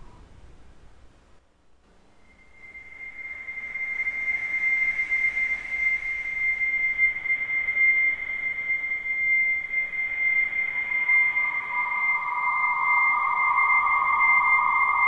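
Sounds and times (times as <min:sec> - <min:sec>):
soft hiss: 0:00.0 - 0:15.0.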